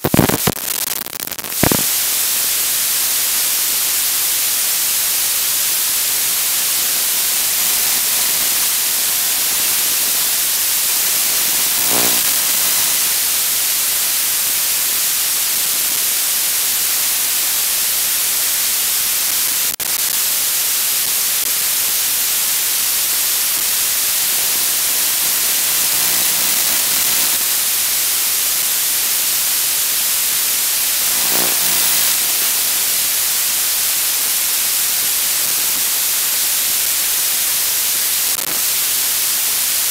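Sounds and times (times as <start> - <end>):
loud analog static hiss: 0.0 - 39.9
faint buzz: 6.8 - 13.2, 24.3 - 27.6, 31.0 - 32.9.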